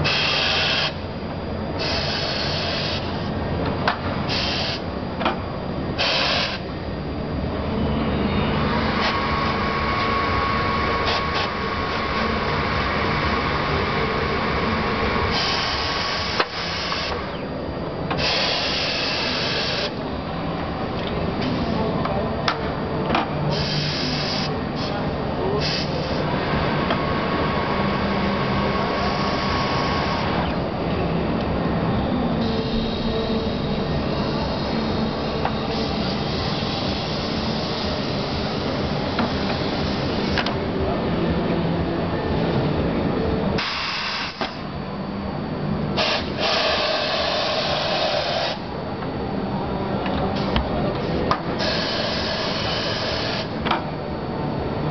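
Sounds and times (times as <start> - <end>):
air hiss: 0.0 - 1.0, 1.8 - 3.2, 4.3 - 4.8, 6.0 - 6.6, 43.6 - 44.6, 46.0 - 48.6
machine hum: 0.0 - 54.9.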